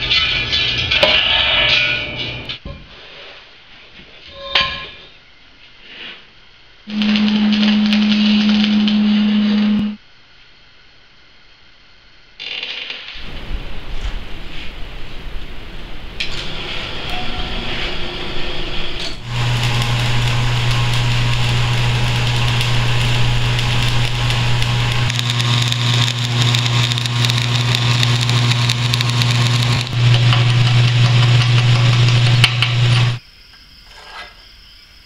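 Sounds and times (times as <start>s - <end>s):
arc welding hum and crackle: 6.9s - 10.0s, 12.3s - 33.2s.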